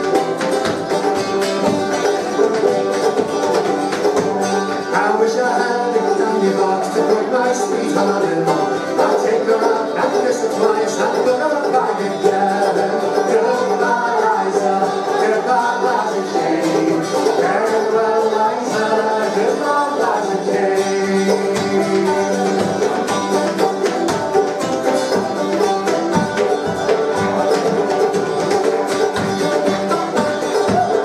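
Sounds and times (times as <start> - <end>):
acoustic guitar: 0.0 - 31.0
banjo: 0.0 - 31.0
person singing: 4.8 - 24.0, 29.4 - 31.0.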